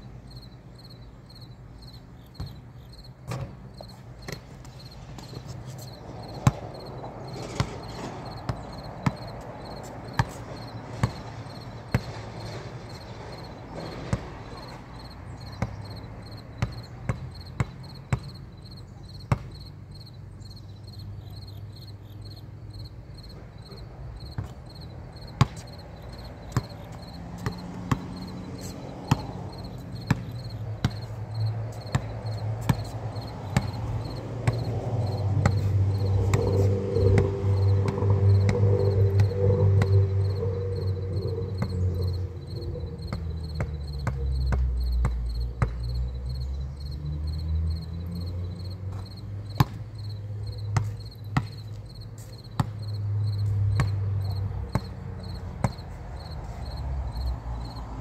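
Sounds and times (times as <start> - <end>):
basketball bouncing on concrete: 2.4 - 2.6, 3.2 - 18.4, 19.1 - 19.8, 23.2 - 40.4, 41.6 - 46.0, 48.9 - 56.5.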